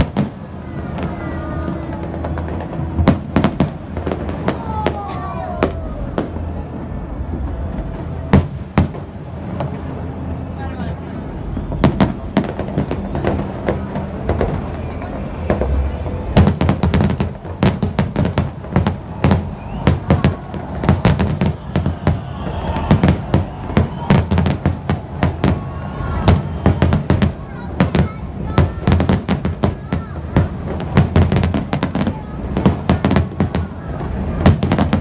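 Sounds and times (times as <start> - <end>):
fireworks bursting: 0.0 - 35.0.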